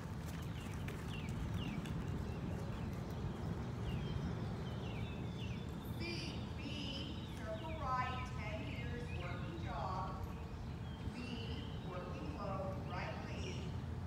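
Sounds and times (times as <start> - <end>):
horse hoofbeats on soft dirt: 0.0 - 10.8
bird chirps: 0.4 - 13.8.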